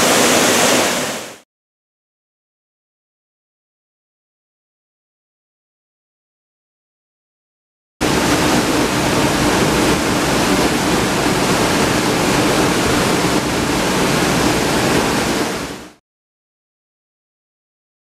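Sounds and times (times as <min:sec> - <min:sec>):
waterfall rushing into a pool: 0:00.0 - 0:01.4, 0:08.0 - 0:16.0.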